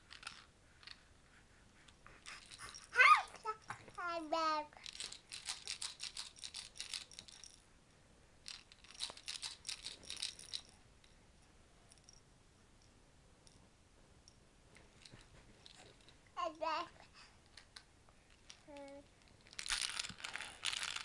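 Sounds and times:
plastic rattle toy shaken: 0.0s - 1.0s, 2.2s - 7.6s, 8.4s - 10.8s, 18.3s - 21.0s.

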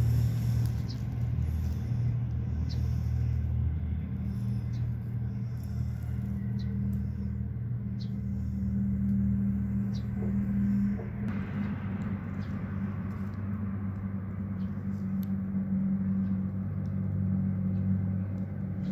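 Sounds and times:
motor humming: 0.0s - 11.4s.

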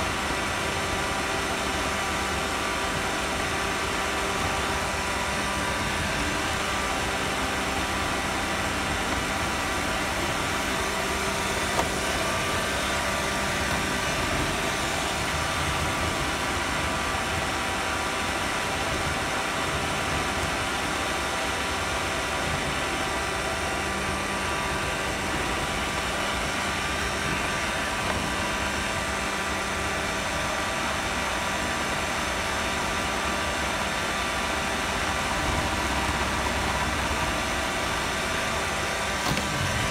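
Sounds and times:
constant whining tones: 0.0s - 39.9s.

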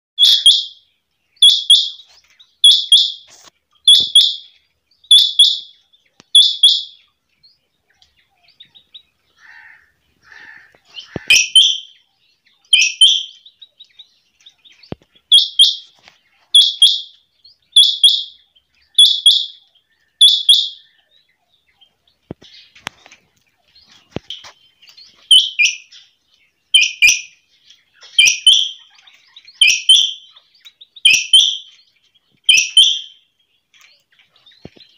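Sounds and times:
quail calling: 0.2s - 0.8s, 1.4s - 4.5s, 5.1s - 7.1s, 8.0s - 13.5s, 14.8s - 21.2s, 25.2s - 26.1s, 26.7s - 31.8s, 32.4s - 33.2s.

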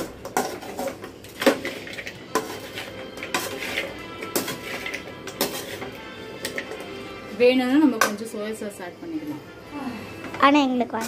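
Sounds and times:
metal spoon scraping metal pan: 0.0s - 7.0s.

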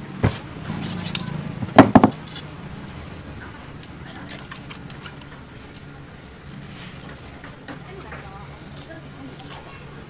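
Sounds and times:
faint clicks and scrapes: 2.2s - 10.0s.

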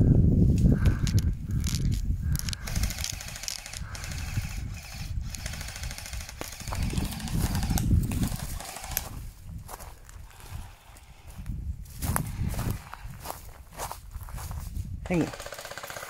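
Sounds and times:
gel blaster full-auto bursts: 2.6s - 9.2s, 15.1s - 16.0s.

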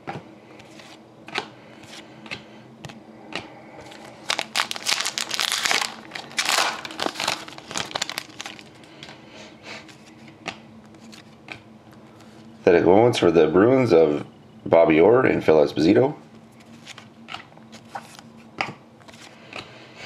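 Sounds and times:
foil wrapper tearing and crinkling: 4.0s - 8.8s.

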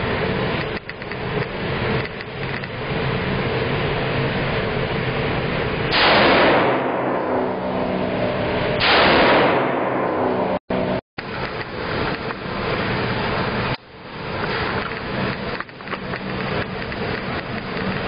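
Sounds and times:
gunshots with ringing echo: 5.9s - 11.0s.

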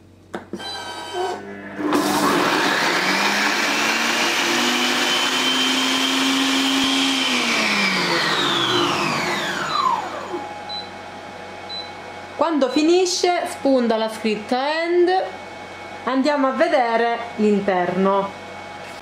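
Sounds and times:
kitchen robot blade motor whining: 0.6s - 10.4s.

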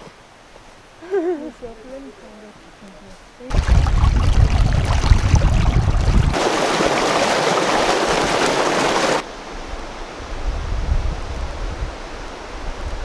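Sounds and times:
wind rumble on microphone: 3.5s - 6.4s, 9.5s - 13.0s
water rushing over rocks: 3.5s - 9.3s.

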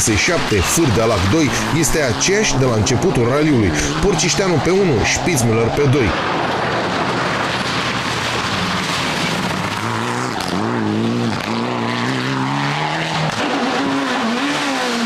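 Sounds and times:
rally car engine revving: 0.0s - 15.0s.

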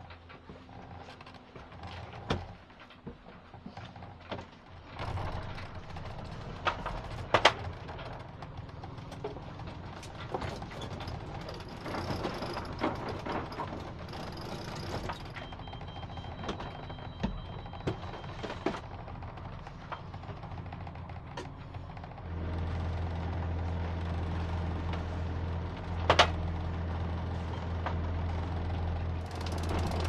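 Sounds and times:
boat engine running: 3.4s - 30.0s
winch ratchet clicking: 10.8s - 15.4s, 29.2s - 30.0s.

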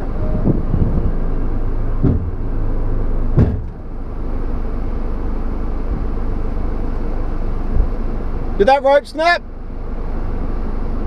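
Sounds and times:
electric winch droning under load: 0.0s - 11.0s
sharp bang: 3.4s - 3.8s.

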